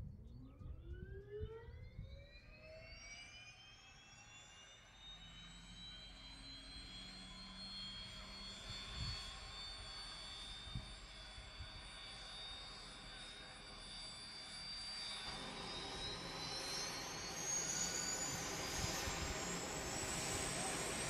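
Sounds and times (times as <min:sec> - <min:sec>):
turboprop engine whine: 0:00.0 - 0:21.0.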